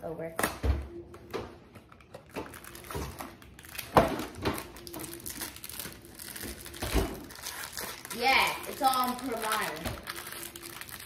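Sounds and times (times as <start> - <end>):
kitchen items knocking and clattering: 2.2 - 5.1.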